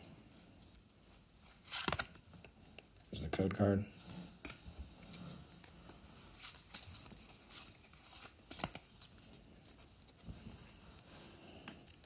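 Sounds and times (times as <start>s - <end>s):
trading cards clicking and rustling: 0.6s - 3.7s, 6.4s - 10.8s.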